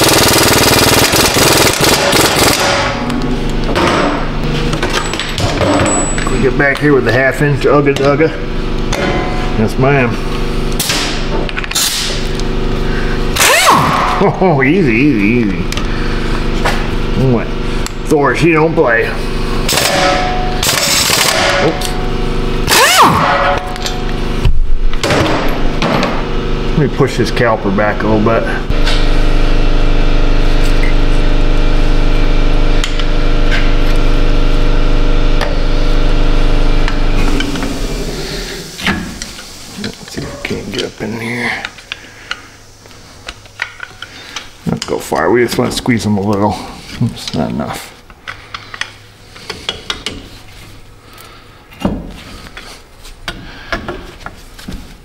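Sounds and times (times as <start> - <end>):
electric motor running: 0.0 - 3.6, 12.3 - 14.3, 19.2 - 24.4, 28.6 - 39.3.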